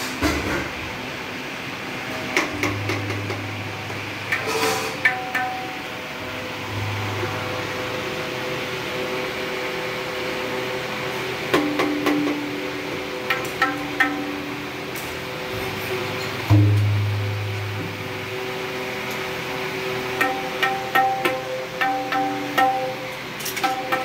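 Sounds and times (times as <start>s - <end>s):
tuning hammer tapping tabla: 5.0s - 5.8s, 13.3s - 14.6s, 20.2s - 24.0s
tabla strokes ringing: 13.3s - 14.7s, 16.5s - 18.0s, 20.2s - 24.0s.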